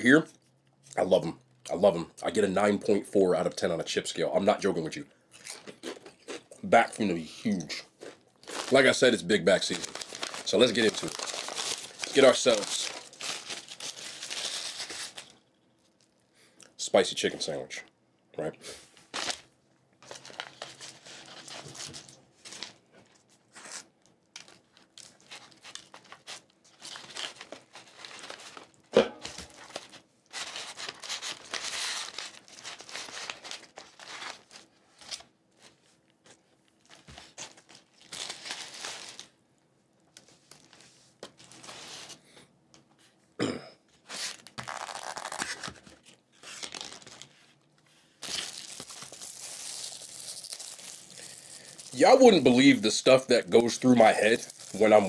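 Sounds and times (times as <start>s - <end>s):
paper wrappers rustling and tearing: 8.0s - 16.1s, 19.0s - 39.4s, 40.1s - 42.2s, 44.0s - 55.0s.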